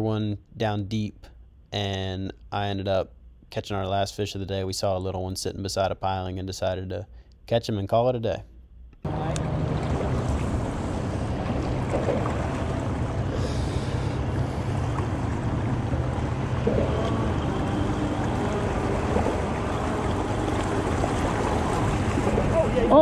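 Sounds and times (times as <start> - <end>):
boat motor humming: 9.0 - 23.0
wind: 9.0 - 23.0
water noise: 9.1 - 23.0.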